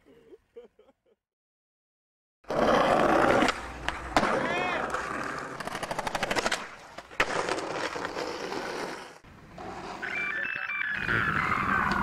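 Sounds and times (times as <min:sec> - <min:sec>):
skateboard rolling over brick paving: 0:02.5 - 0:10.3.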